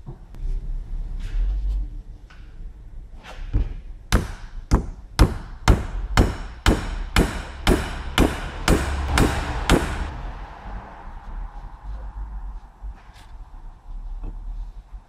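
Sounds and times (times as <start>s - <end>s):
hammer blows on steel: 5.2s - 10.2s.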